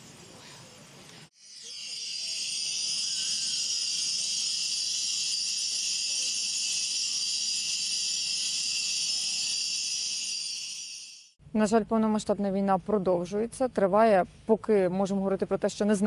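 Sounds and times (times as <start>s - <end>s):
metal chimes ringing: 1.5s - 11.2s.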